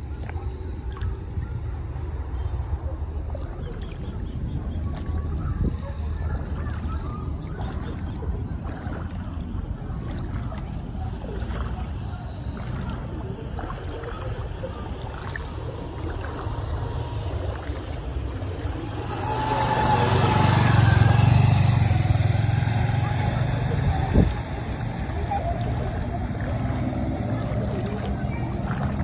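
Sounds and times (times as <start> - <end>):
motorcycle engine idling: 18.1 - 29.0.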